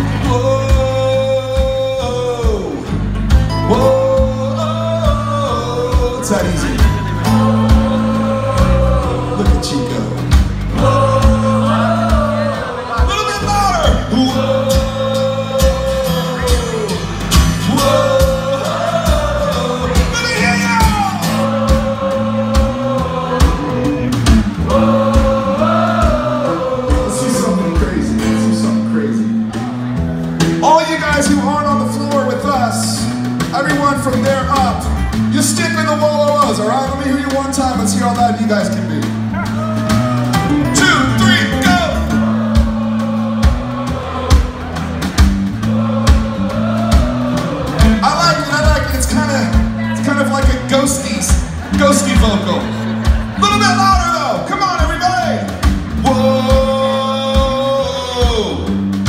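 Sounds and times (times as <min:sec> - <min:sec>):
man singing: 0:00.0 - 0:22.0, 0:22.6 - 0:29.7, 0:56.0 - 0:58.8
acoustic guitars: 0:00.0 - 0:59.0
electric bass: 0:00.0 - 0:59.0
live rock band playing: 0:00.0 - 0:59.0
steady kick-drum beat: 0:00.0 - 0:59.0
man singing long notes: 0:56.0 - 0:58.6.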